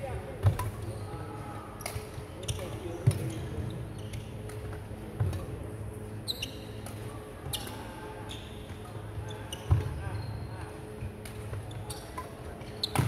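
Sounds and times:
shoe squeak: 0:00.8 - 0:01.4, 0:06.2 - 0:06.8, 0:07.5 - 0:10.5.

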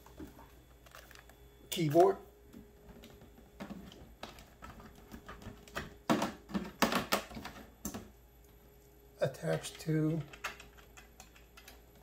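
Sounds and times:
keyboard clicks and knocks: 0:09.6 - 0:12.0.

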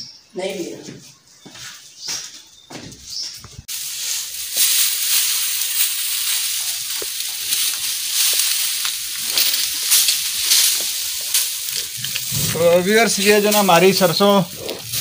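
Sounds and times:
dried plants rustling and crackling: 0:03.4 - 0:15.0.

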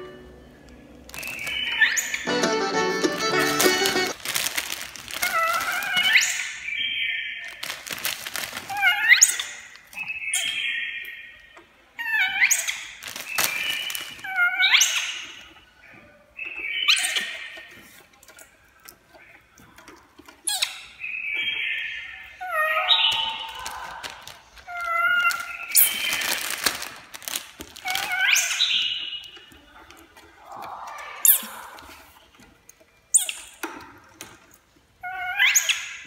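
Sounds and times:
scuffling and clicking: 0:00.7 - 0:06.6, 0:23.0 - 0:32.9
monkey squealing calls: 0:05.2 - 0:06.6, 0:12.0 - 0:12.9, 0:14.2 - 0:15.3, 0:22.4 - 0:23.6, 0:24.7 - 0:26.3, 0:27.8 - 0:28.9, 0:35.0 - 0:36.0.

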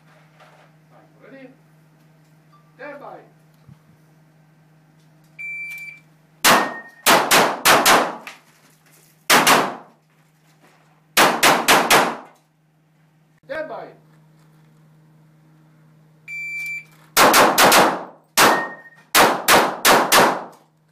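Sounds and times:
shot timer beep: 0:05.4 - 0:06.0, 0:06.6 - 0:07.0, 0:16.3 - 0:16.9, 0:18.4 - 0:19.0
pistol shots echoing: 0:06.4 - 0:08.2, 0:09.3 - 0:09.9, 0:11.2 - 0:12.3, 0:17.2 - 0:20.5.

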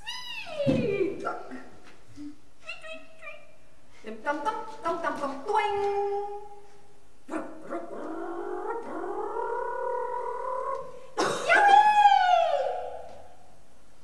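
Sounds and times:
woman making vocal sound effects: 0:07.3 - 0:13.1.

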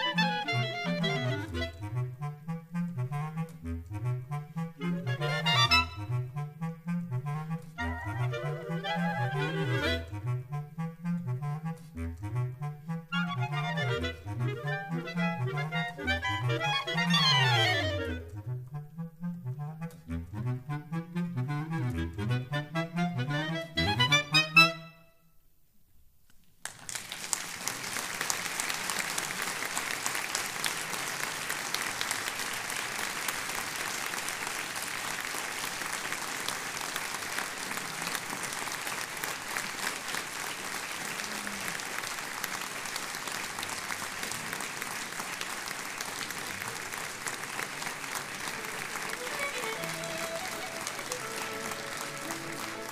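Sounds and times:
held musical tones: 0:00.0 - 0:24.9, 0:48.3 - 0:52.9
audience applause: 0:26.6 - 0:52.9.

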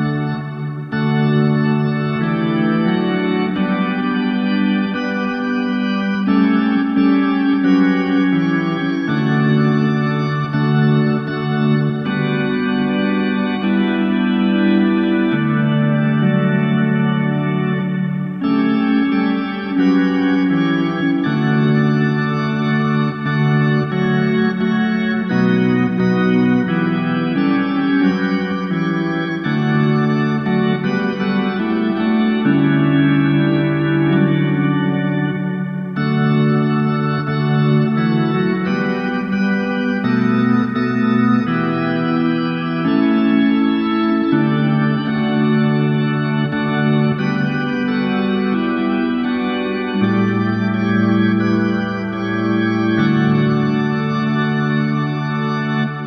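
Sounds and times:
organ chorale: 0:00.0 - 0:56.0.

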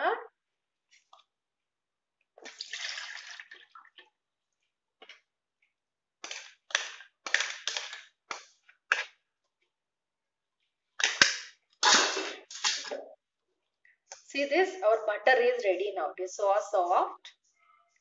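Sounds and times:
buttermilk splashing while poured: 0:02.4 - 0:04.2.

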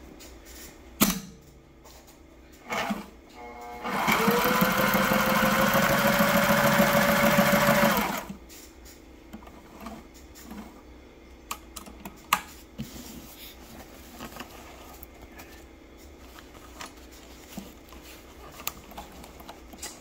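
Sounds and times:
sewing machine stitching: 0:02.6 - 0:08.4.

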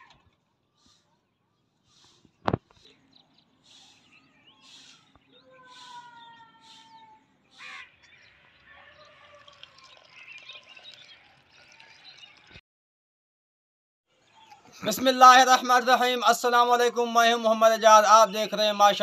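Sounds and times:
birds calling: 0:00.0 - 0:12.6
broom swishing over dusty ground: 0:00.8 - 0:03.0, 0:03.6 - 0:07.6
water from hose pouring into pot: 0:08.5 - 0:12.6.

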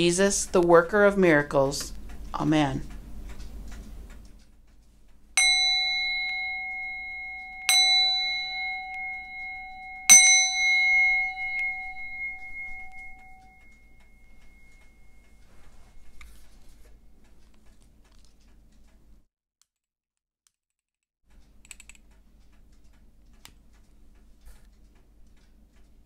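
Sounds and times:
singing bowl ringing: 0:05.4 - 0:16.2.

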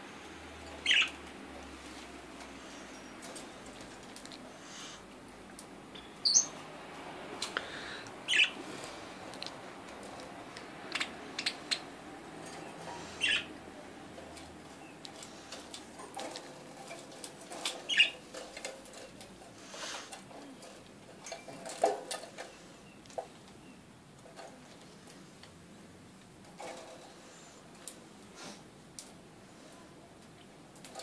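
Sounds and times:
budgerigars chirping: 0:00.8 - 0:01.2, 0:08.3 - 0:08.6, 0:10.9 - 0:11.9, 0:12.7 - 0:13.5, 0:17.9 - 0:18.2
light clicks and taps: 0:09.3 - 0:11.6.

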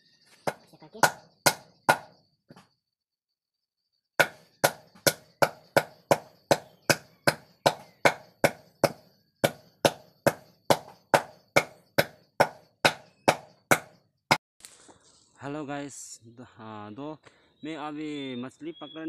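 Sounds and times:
hammer pounding bark on wood: 0:00.4 - 0:02.2, 0:04.2 - 0:14.0.

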